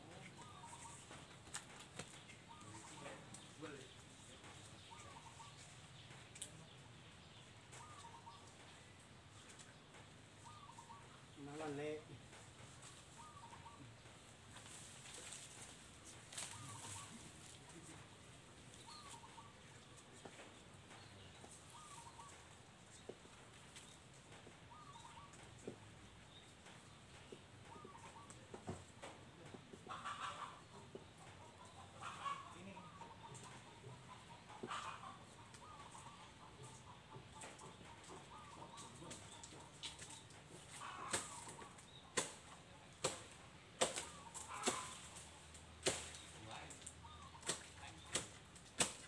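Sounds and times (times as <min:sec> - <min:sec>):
faint distant bird call: 0:02.1 - 0:09.8, 0:10.4 - 0:12.1, 0:12.9 - 0:14.1, 0:16.4 - 0:23.2, 0:23.8 - 0:29.1.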